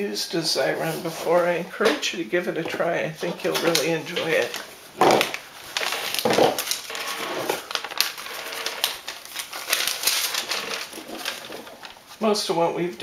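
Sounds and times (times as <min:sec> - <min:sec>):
paper sticker rustling and crinkling: 0:02.7 - 0:12.5.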